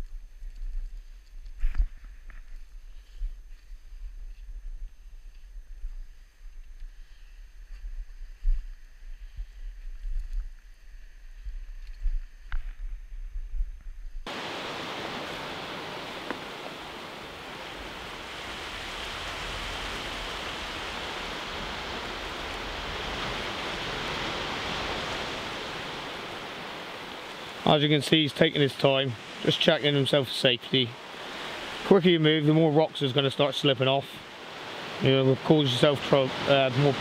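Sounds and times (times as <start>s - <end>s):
sea surf breaking on rocks: 14.3s - 37.0s.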